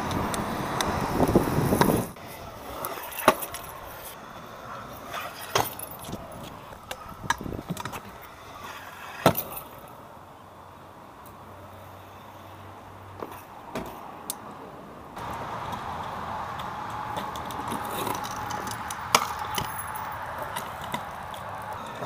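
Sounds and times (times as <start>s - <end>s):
wind on microphone: 0.0s - 2.8s, 6.0s - 8.0s
scooter clacking on pavement: 0.0s - 10.0s, 15.2s - 22.0s
scooter rolling on concrete: 0.0s - 22.0s.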